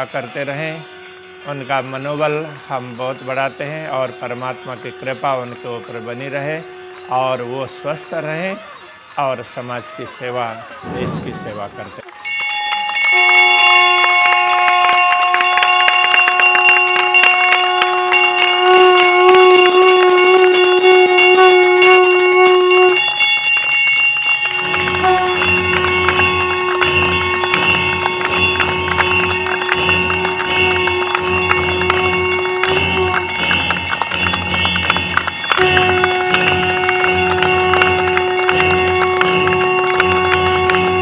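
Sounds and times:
conch shell blasts: 0:00.0 - 0:09.0, 0:10.8 - 0:41.0
bell ringing: 0:00.0 - 0:41.0
rapid hand claps: 0:12.0 - 0:21.5, 0:22.8 - 0:41.0
low pulsing beat: 0:24.8 - 0:41.0.

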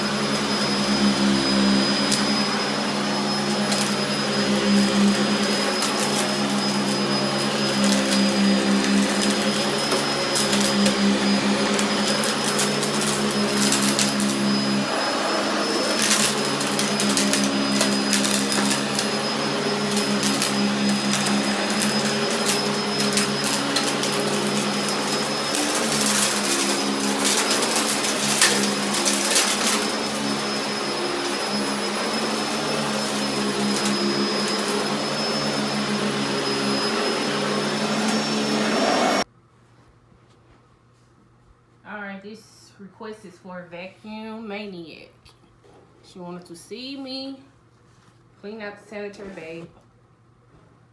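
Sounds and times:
vacuum cleaner running: 0:00.0 - 0:39.3.

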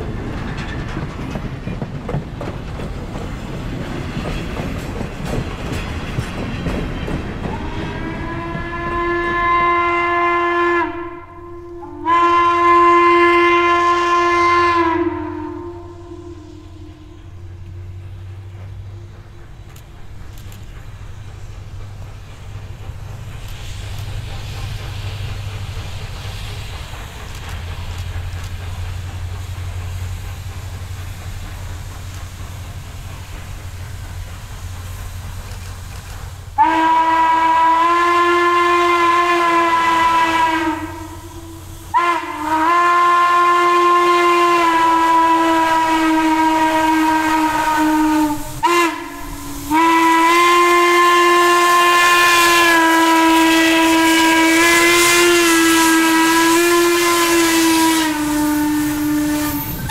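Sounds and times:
low rumble of locomotive: 0:00.0 - 0:59.9
steam whistle blasts: 0:07.5 - 0:18.1, 0:36.6 - 0:59.9.

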